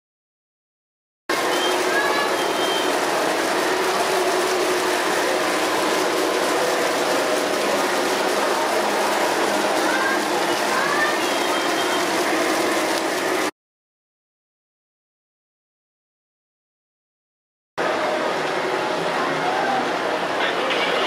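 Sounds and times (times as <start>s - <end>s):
model train rolling on track: 1.3s - 13.5s, 17.8s - 21.0s
background chatter: 1.4s - 13.4s, 17.8s - 21.0s.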